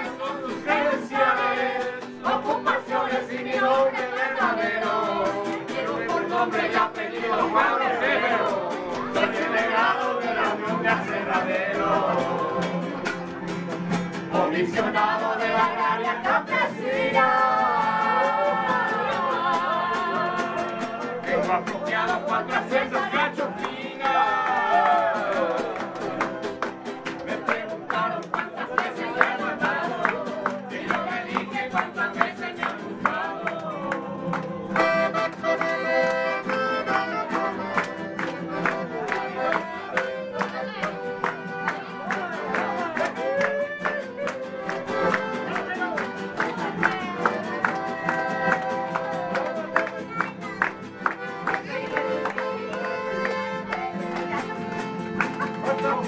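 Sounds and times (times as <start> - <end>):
voices singing along: 0.0 - 13.1, 14.2 - 54.1
acoustic guitars strumming: 0.0 - 56.0.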